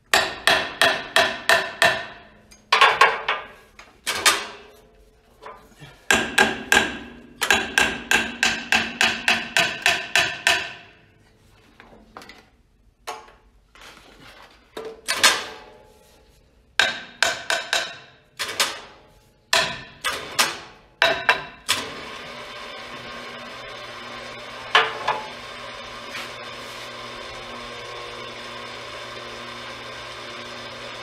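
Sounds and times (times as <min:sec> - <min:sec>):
hammer striking metal: 0:00.1 - 0:03.5, 0:06.1 - 0:11.0, 0:16.8 - 0:21.7, 0:24.7 - 0:25.3.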